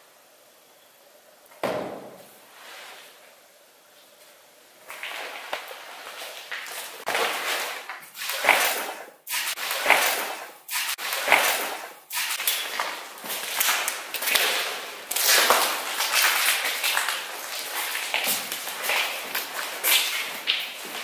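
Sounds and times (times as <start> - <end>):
steady hiss-like noise: 0.0 - 7.1.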